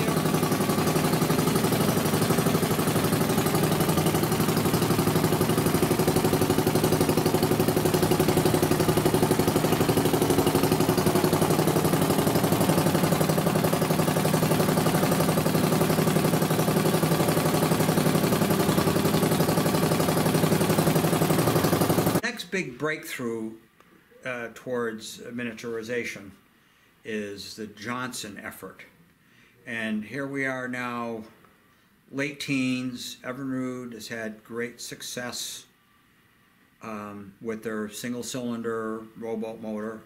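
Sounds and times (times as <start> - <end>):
outboard motor running: 0.0 - 22.2
propeller churning water: 0.0 - 22.2.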